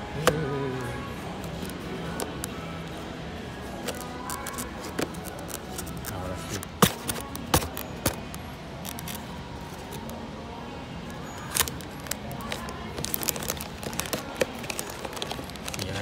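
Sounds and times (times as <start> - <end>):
packaging crinkling: 3.8 - 10.2, 11.4 - 16.0.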